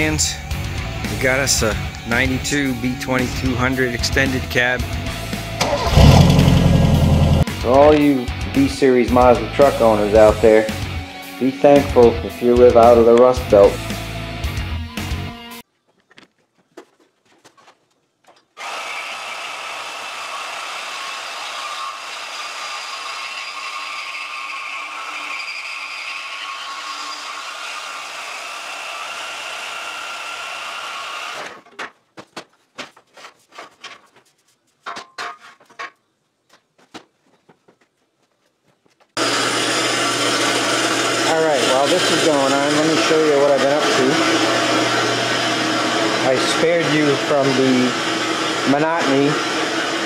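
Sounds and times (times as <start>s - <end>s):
power tool on steel tubing: 5.6s - 7.5s, 18.6s - 31.6s, 39.2s - 50.0s
knocks and clatter: 31.6s - 38.0s.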